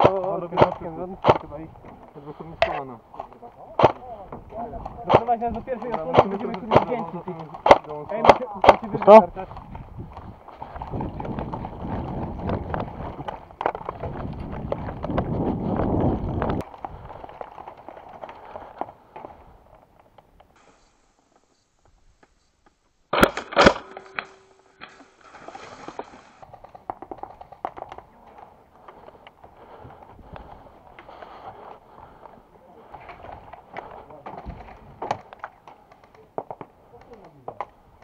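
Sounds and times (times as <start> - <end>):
sharp bangs: 23.1 - 25.0
rustling and handling noise: 23.9 - 37.8.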